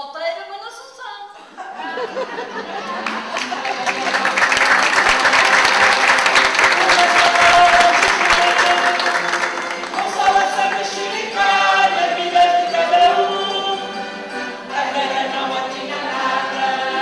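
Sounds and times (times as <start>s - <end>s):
audience applauding: 2.1s - 13.4s
music: 2.4s - 17.0s.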